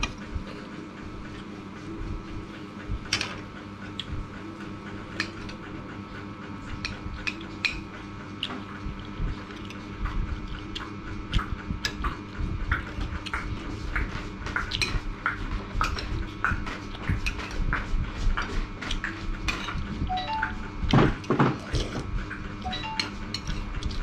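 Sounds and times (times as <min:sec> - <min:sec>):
chewing: 0:08.3 - 0:12.1, 0:21.6 - 0:22.6.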